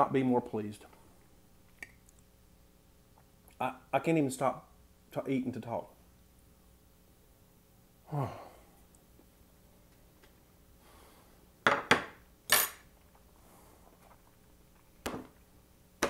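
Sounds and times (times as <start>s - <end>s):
man humming: 8.1s - 8.6s.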